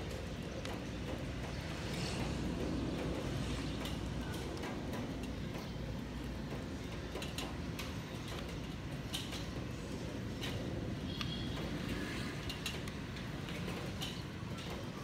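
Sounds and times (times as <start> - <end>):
distant jet engine rumble: 0.0 - 15.0.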